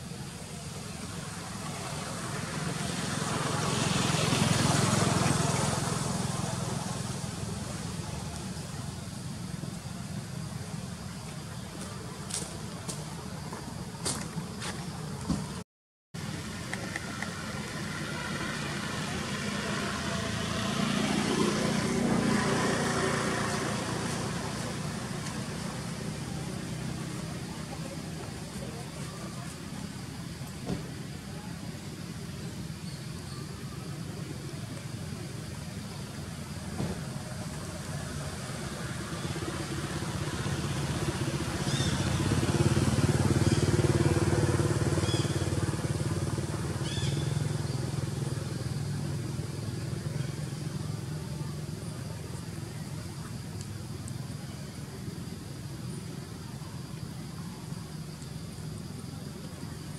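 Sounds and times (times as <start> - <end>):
vehicle passing on road: 0.5 - 11.0, 16.2 - 32.8, 33.8 - 54.4.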